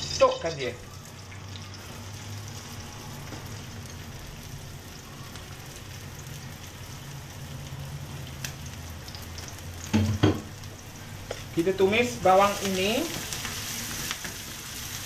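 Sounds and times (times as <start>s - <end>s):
onions sizzling in oil: 0.0s - 15.0s.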